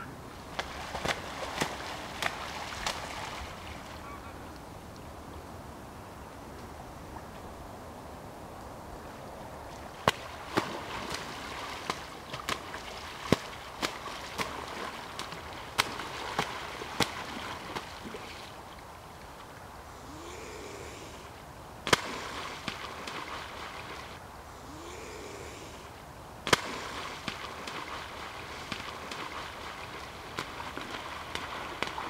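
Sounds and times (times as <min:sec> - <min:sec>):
water splashing: 0:00.0 - 0:04.4, 0:09.7 - 0:19.6, 0:21.9 - 0:24.2, 0:26.5 - 0:32.0
wings slapping water: 0:00.0 - 0:04.7, 0:09.7 - 0:19.5, 0:21.9 - 0:24.2, 0:26.5 - 0:32.0.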